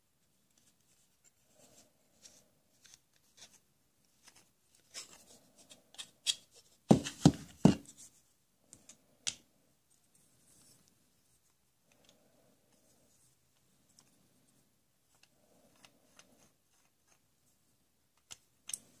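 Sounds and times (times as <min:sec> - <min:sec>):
plastic toy parts clicking: 0:18.2 - 0:19.0.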